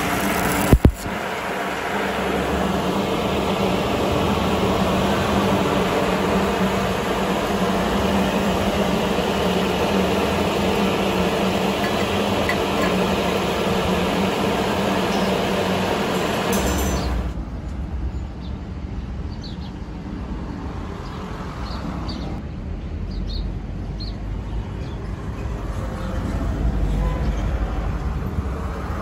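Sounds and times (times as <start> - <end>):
machine humming: 0.0 - 17.4
even rushing noise: 0.0 - 18.2.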